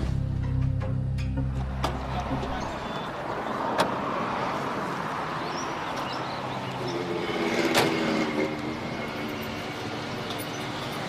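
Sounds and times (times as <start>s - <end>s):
street noise: 0.0s - 11.0s.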